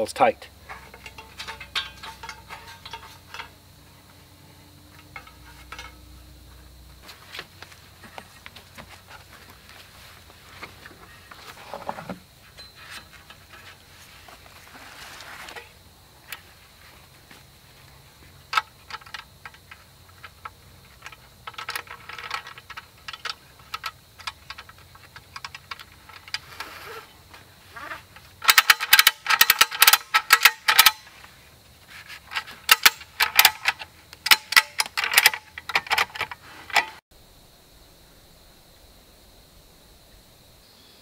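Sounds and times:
ratchet buckle clicking: 0:05.0 - 0:06.0, 0:28.4 - 0:31.0, 0:32.7 - 0:37.0.

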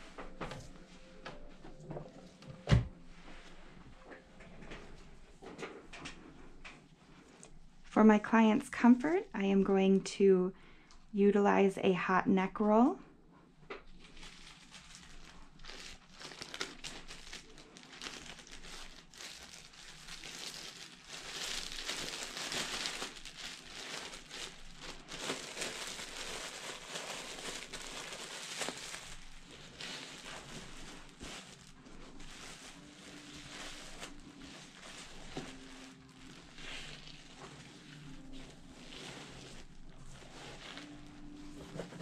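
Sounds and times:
plastic wrapping crinkling: 0:13.8 - 0:42.0.

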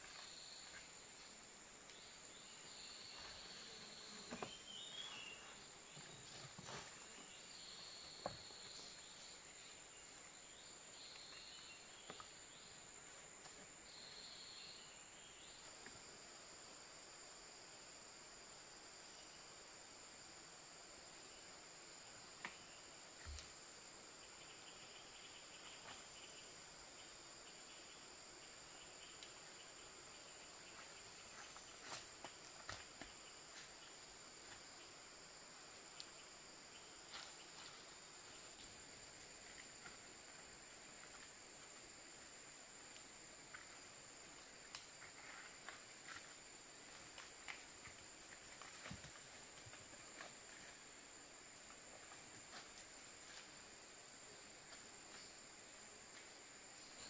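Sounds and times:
insects droning: 0:00.0 - 0:57.0.

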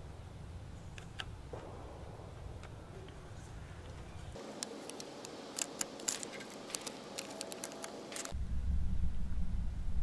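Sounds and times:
low steady rumble: 0:00.0 - 0:04.4, 0:08.3 - 0:10.0
decal peeling rustle and ticks: 0:03.1 - 0:08.4.

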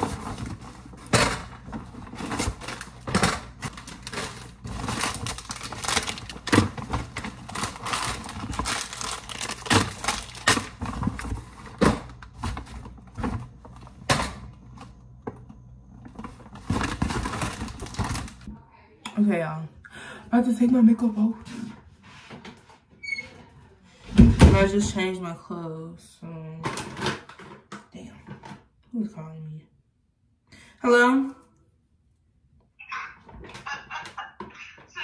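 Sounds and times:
paper bag rustling: 0:00.0 - 0:14.0, 0:16.0 - 0:18.5
groceries knocking: 0:00.0 - 0:18.5.

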